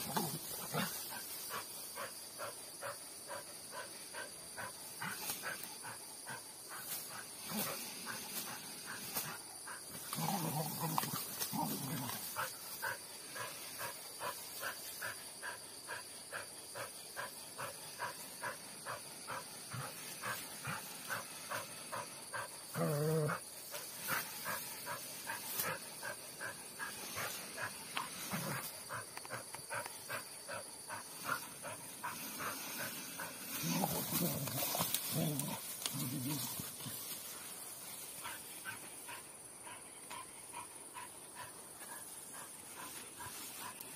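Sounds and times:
dog growling and whining: 0:22.7 - 0:23.4.

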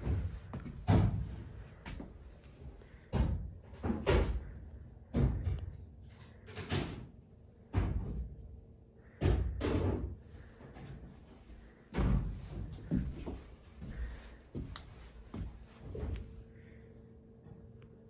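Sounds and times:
footsteps on wooden floor: 0:00.0 - 0:02.2, 0:12.0 - 0:16.4.

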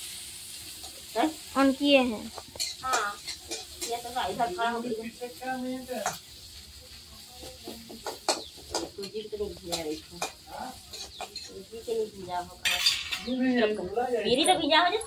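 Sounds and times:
food sizzling in oil: 0:00.0 - 0:15.0
ladle scraping metal pan: 0:12.6 - 0:13.4.

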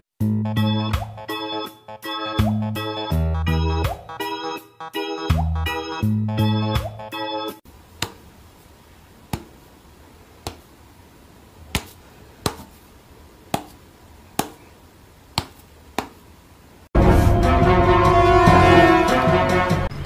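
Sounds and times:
sharp snaps: 0:08.0 - 0:08.3, 0:09.2 - 0:09.7, 0:10.4 - 0:10.8, 0:13.4 - 0:14.7, 0:15.3 - 0:16.3
loud music: 0:17.0 - 0:20.0.

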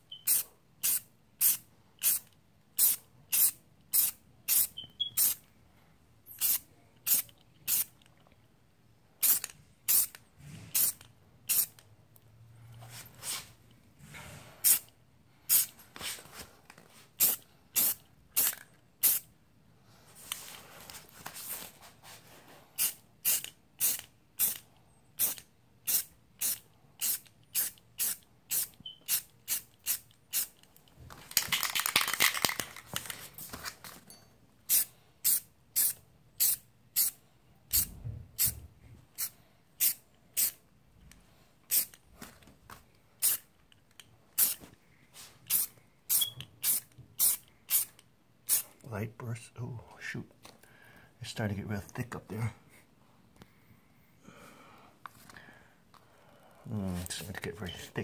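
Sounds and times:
spray paint can bursts: 0:00.1 - 0:05.4, 0:06.4 - 0:07.9, 0:09.2 - 0:11.8, 0:14.6 - 0:14.9, 0:17.2 - 0:19.3, 0:22.8 - 0:24.6, 0:25.2 - 0:30.6, 0:34.7 - 0:38.6, 0:39.2 - 0:40.6, 0:41.7 - 0:42.0, 0:43.2 - 0:43.5, 0:44.4 - 0:44.6, 0:45.5 - 0:47.9.

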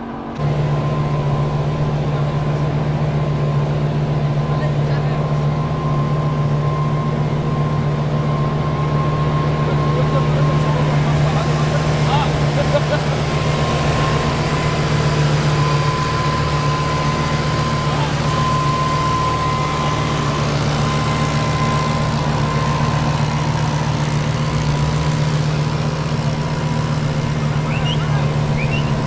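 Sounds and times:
car engine idling: 0:00.0 - 0:29.0.

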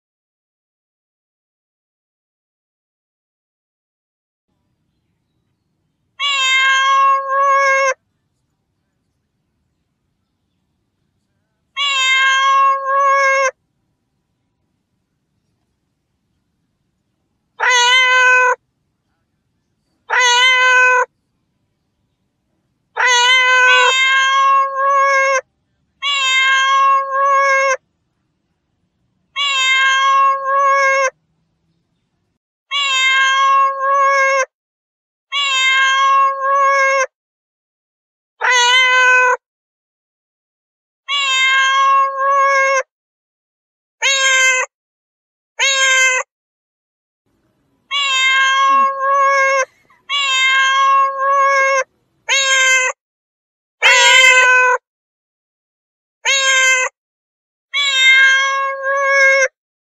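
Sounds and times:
cat meowing: 0:06.2 - 0:08.0, 0:11.8 - 0:13.6, 0:17.6 - 0:18.6, 0:20.1 - 0:21.1, 0:23.0 - 0:27.8, 0:29.4 - 0:31.2, 0:32.7 - 0:34.5, 0:35.3 - 0:37.1, 0:38.4 - 0:39.4, 0:41.1 - 0:42.9, 0:44.0 - 0:44.7, 0:45.6 - 0:46.3, 0:47.9 - 0:53.0, 0:53.8 - 0:54.8, 0:56.2 - 0:57.0, 0:57.7 - 0:59.6.

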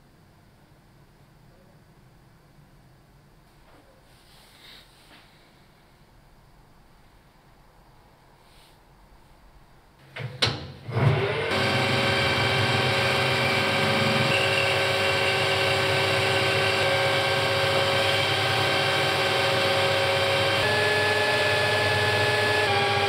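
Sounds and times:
rising motor whine: 0:10.9 - 0:23.0
metal lathe humming: 0:11.1 - 0:23.0.

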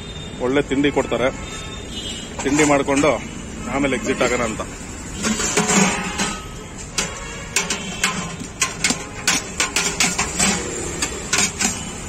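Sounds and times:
steel cookware clinking: 0:04.2 - 0:12.0.

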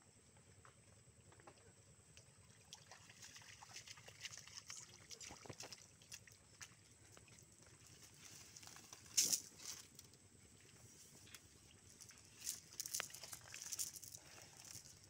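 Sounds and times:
water dripping from net: 0:02.1 - 0:07.4
wading feet splashing: 0:02.6 - 0:09.5.

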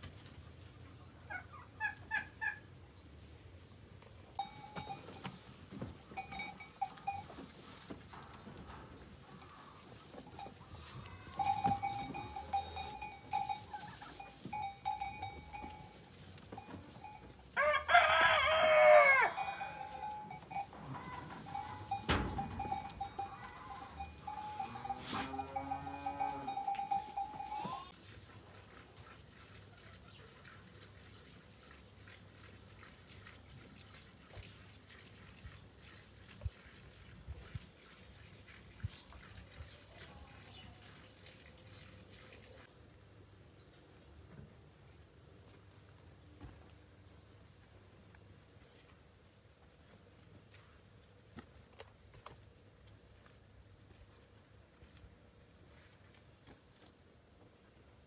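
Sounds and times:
rooster crowing: 0:17.6 - 0:20.1
faint high tone: 0:19.7 - 0:27.9.

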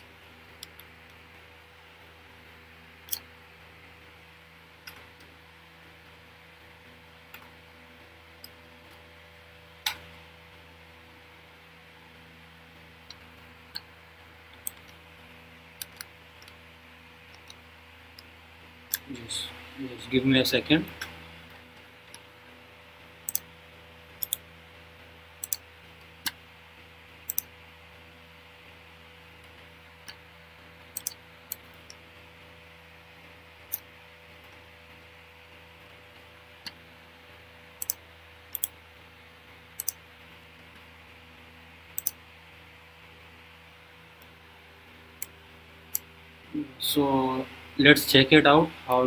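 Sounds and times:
faint electrical hum: 0:00.0 - 0:49.0
computer keyboard and mouse clicks: 0:24.2 - 0:24.4, 0:25.4 - 0:25.6, 0:27.3 - 0:27.5, 0:31.0 - 0:31.2, 0:37.8 - 0:38.7, 0:39.8 - 0:40.0, 0:42.0 - 0:42.2.

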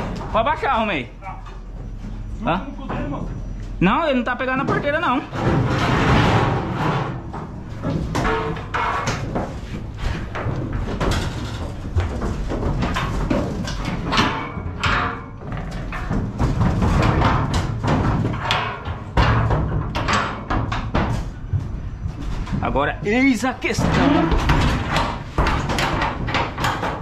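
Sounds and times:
metal clanks and bangs: 0:04.2 - 0:27.0
metal gate scraping: 0:05.2 - 0:10.3.

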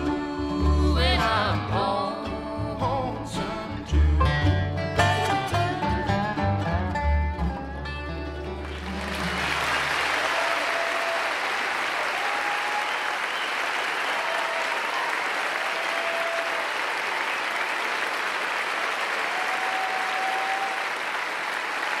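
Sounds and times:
audience applauding: 0:08.4 - 0:22.0
crowd cries: 0:08.7 - 0:18.2, 0:18.8 - 0:21.9.

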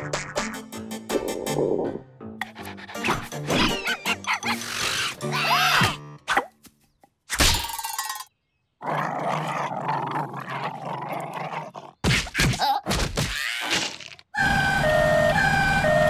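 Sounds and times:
cartoon dog barking and yelping: 0:02.6 - 0:06.5
cartoon dog growling: 0:02.9 - 0:05.4
two-tone emergency siren: 0:14.4 - 0:16.0.

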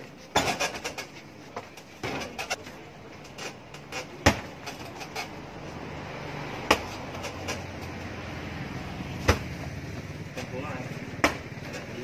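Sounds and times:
kicks smacking punching bag: 0:04.2 - 0:04.6, 0:09.2 - 0:09.5.

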